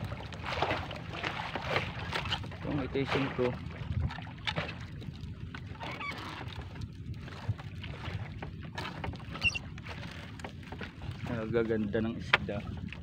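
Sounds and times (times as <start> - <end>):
net and floats knocking hull: 0.0 - 5.1
boat engine idling: 0.0 - 13.0.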